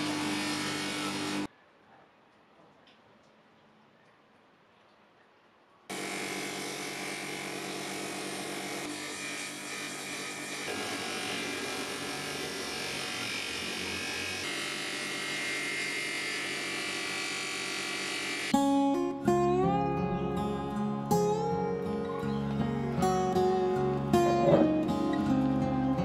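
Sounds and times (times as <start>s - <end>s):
bench grinder running: 0.0s - 1.5s, 5.9s - 18.6s.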